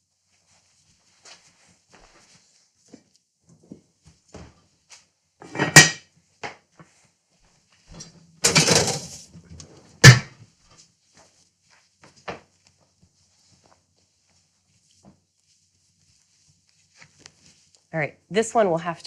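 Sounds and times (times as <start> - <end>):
pot clattering knock: 8.4 - 9.2.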